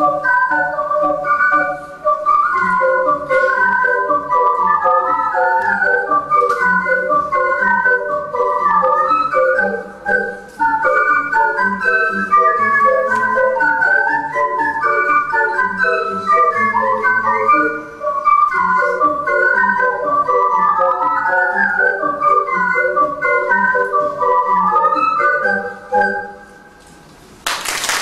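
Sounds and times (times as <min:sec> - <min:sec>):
ocarina ensemble playing polka: 0:00.0 - 0:26.6
applause: 0:27.4 - 0:28.0.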